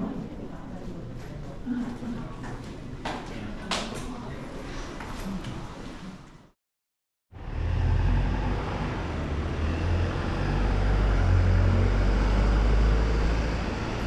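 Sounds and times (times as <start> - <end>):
road traffic rumble: 7.3 - 14.0.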